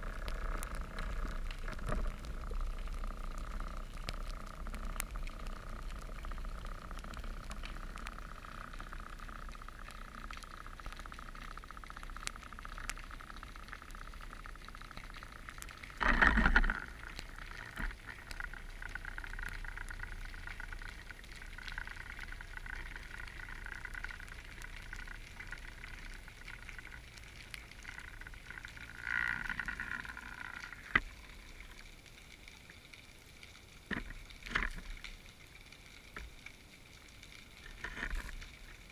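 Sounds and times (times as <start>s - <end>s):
clicks and crackles: 0.0s - 38.9s
faint underwater hum: 0.0s - 38.9s.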